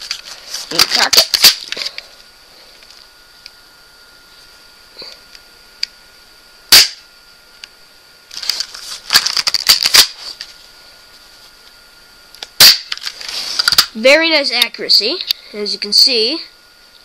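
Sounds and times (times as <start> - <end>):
airsoft pistol shot snap: 6.7 - 7.0.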